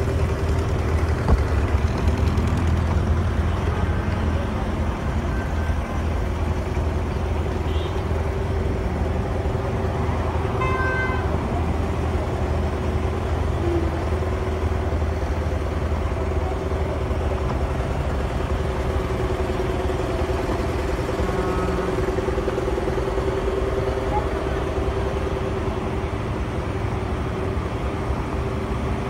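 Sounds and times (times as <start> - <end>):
street noise with low hum: 0.0 - 29.0
vehicle horn toot: 10.6 - 11.4.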